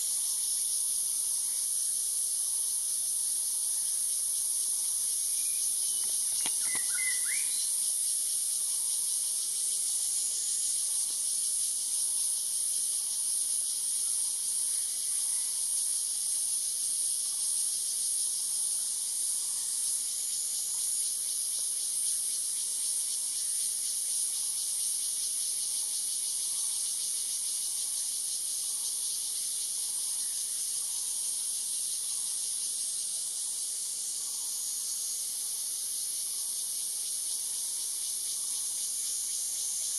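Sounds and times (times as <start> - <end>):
insects chorus: 0.0 - 39.9.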